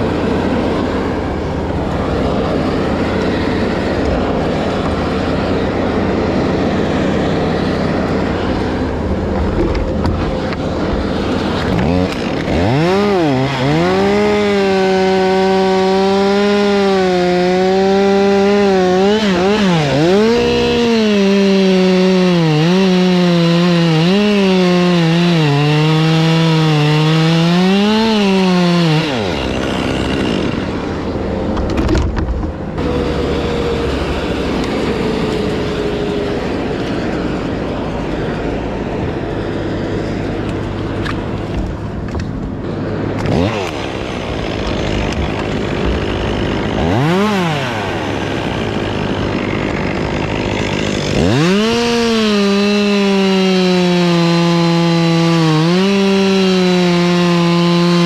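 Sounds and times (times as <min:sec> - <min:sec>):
chainsaw revving: 0:00.0 - 0:58.0
steady engine hum: 0:00.0 - 0:58.0.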